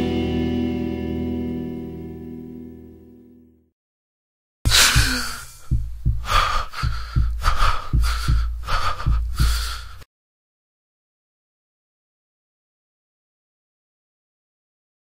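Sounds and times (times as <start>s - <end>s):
person panting and gasping: 4.7s - 10.1s.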